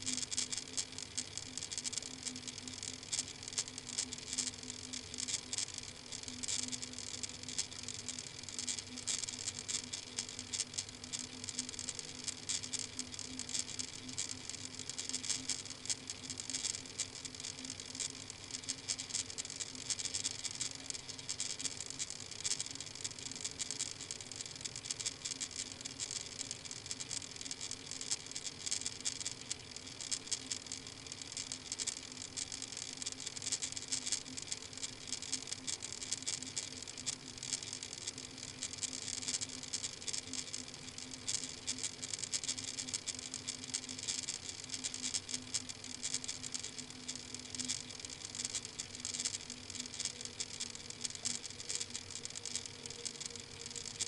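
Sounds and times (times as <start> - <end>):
low steady hum: 0.0 - 24.3
fine crackling noise: 0.0 - 54.0.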